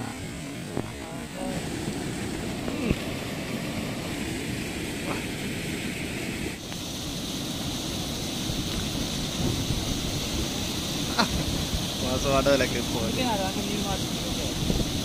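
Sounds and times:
water rushing over weir: 0.0s - 15.0s.

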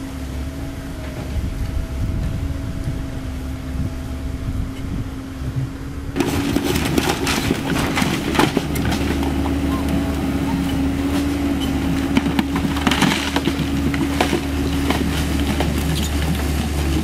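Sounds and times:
excavator diesel engine running: 0.0s - 17.0s
crackling and knocking noises: 5.6s - 17.0s.

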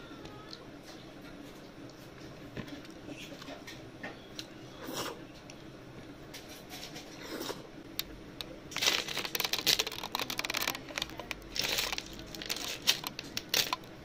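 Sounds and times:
snail shells clicking and rattling: 8.7s - 14.0s.

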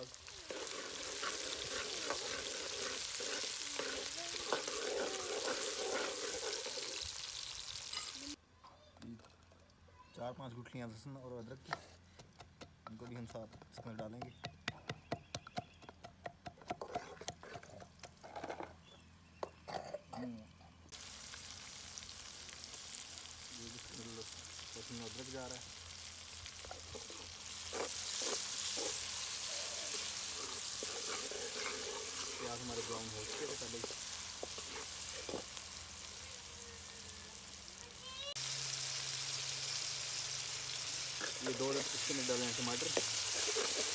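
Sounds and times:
oil sizzling in a wok: 0.0s - 8.4s, 20.9s - 43.9s
pestle pounding in wooden mortar: 11.7s - 18.2s.

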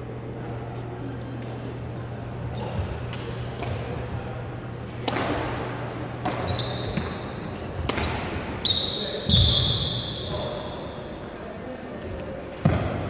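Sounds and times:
steady low hum: 0.0s - 13.0s
rackets hitting shuttlecock: 4.9s - 8.6s.

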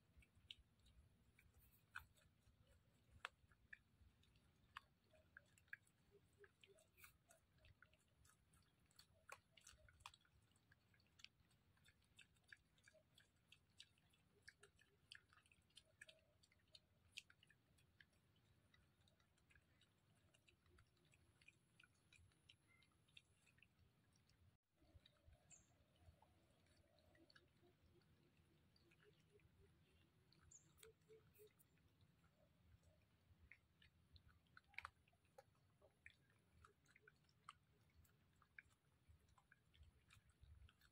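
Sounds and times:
piglet chewing clicks: 0.0s - 40.9s.

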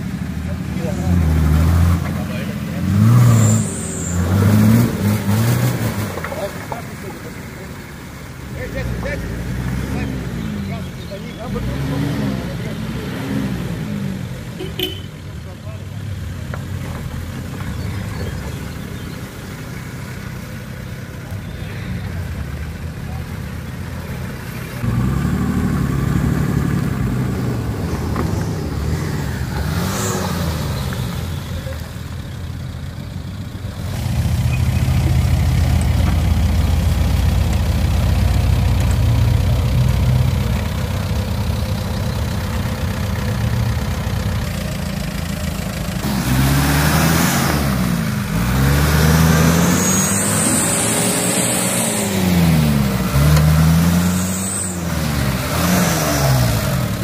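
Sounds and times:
engine revving: 0.0s - 6.8s, 8.6s - 15.0s, 24.7s - 31.8s, 33.8s - 57.0s.

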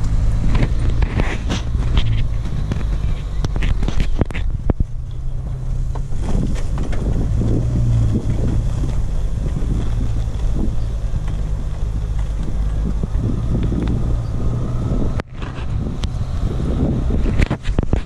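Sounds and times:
knocks and rustles from driving: 0.0s - 14.2s
off-road vehicle engine running: 0.0s - 18.0s.

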